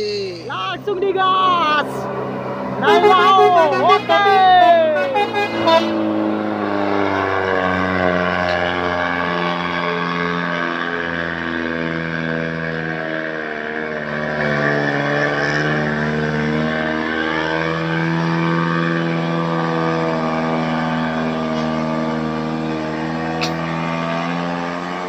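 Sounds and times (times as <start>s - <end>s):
diesel truck engine labouring: 0.0s - 25.0s.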